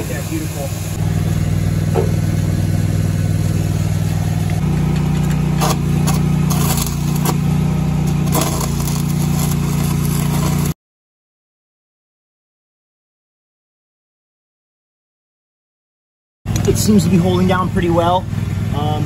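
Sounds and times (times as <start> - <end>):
forklift engine idling: 0.5 - 6.5.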